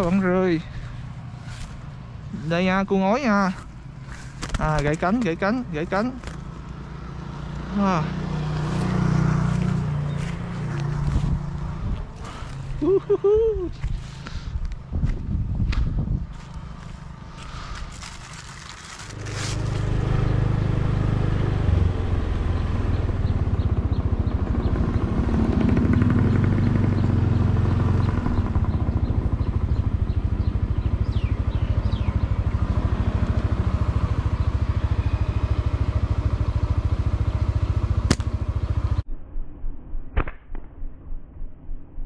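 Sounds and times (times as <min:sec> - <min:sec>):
wind and road noise: 0:00.0 - 0:42.0
motor scooter engine running: 0:16.3 - 0:39.0
sharp click: 0:38.1 - 0:38.3.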